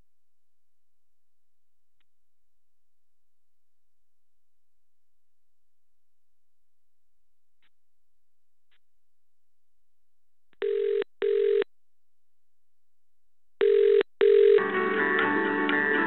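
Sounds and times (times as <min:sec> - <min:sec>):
telephone ringing tone: 0:10.6 - 0:11.7, 0:13.6 - 0:14.7
on-hold music: 0:14.6 - 0:16.0.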